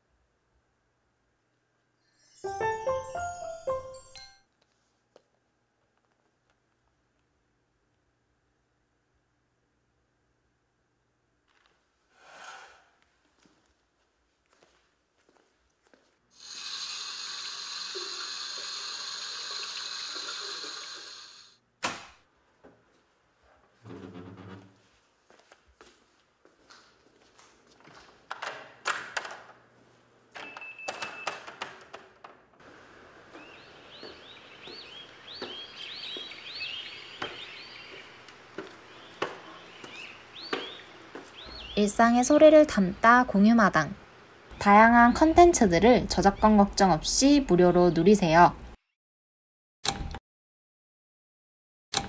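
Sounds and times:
footsteps on concrete: 13.0s - 16.2s, 24.9s - 28.2s, 32.7s - 41.7s
water running from a tap: 16.4s - 21.5s
small birds chirping: 32.7s - 42.8s, 44.5s - 47.2s.

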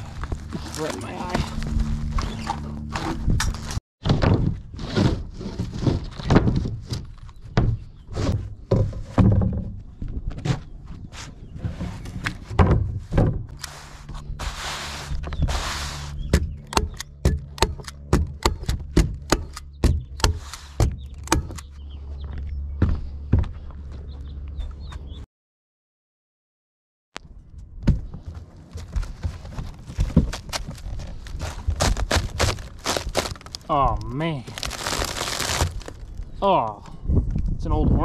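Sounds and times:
rasping scrape: 13.5s - 17.0s
footsteps on plywood: 19.9s - 25.1s, 27.8s - 33.5s.

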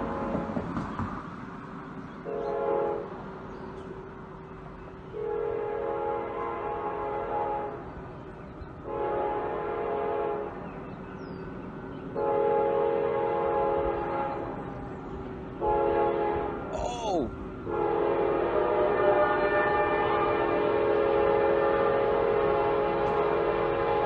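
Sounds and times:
low train rumble: 0.0s - 24.0s
locomotive air horn blasts: 2.3s - 3.1s, 5.1s - 7.8s, 8.8s - 10.5s, 12.2s - 14.5s, 15.6s - 16.7s, 17.6s - 24.0s.

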